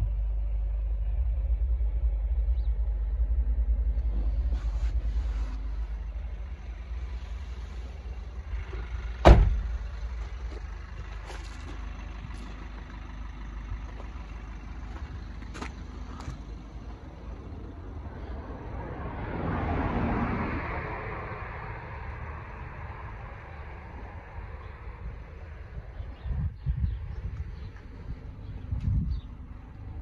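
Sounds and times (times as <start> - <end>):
steady low rumble: 0.0 - 30.0
van door slamming: 9.2 - 10.0.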